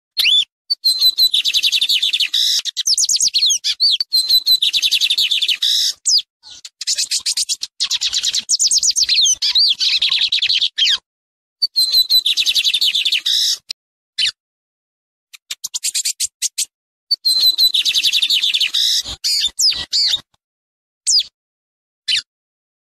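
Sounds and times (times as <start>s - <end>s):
bird singing whistles: 0.2s - 11.0s, 11.6s - 13.6s, 15.4s - 20.2s, 21.1s - 21.3s.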